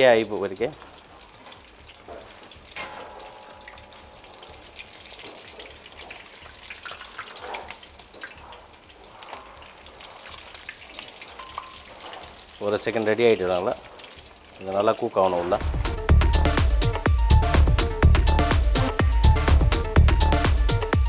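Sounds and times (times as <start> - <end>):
fish deep-frying in hot oil: 0.0 - 21.0.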